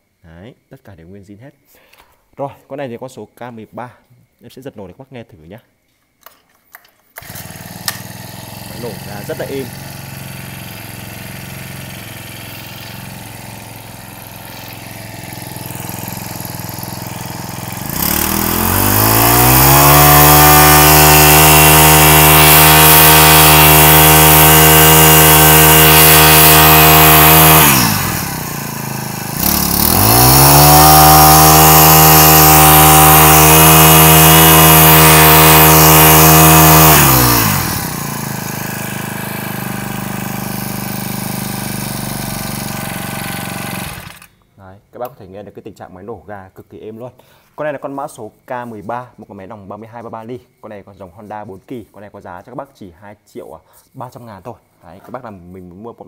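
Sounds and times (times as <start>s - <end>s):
brushcutter engine revving: 7.2s - 44.4s.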